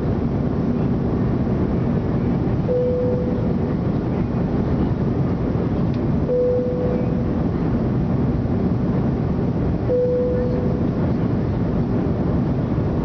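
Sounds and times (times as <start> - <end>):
jet cabin engine rush: 0.0 - 13.0
short steady tone: 2.7 - 3.6, 6.3 - 7.3, 9.9 - 10.9.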